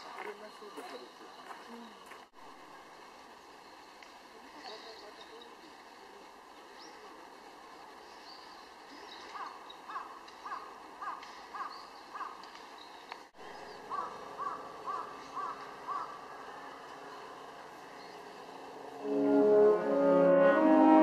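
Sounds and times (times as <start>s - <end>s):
crow cawing: 9.4s - 12.4s, 13.9s - 16.2s.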